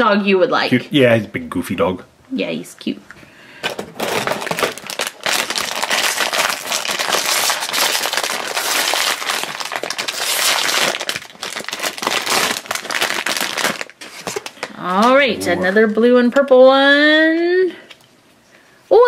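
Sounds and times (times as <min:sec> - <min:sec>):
foil wrapper crinkling: 0:03.6 - 0:15.2.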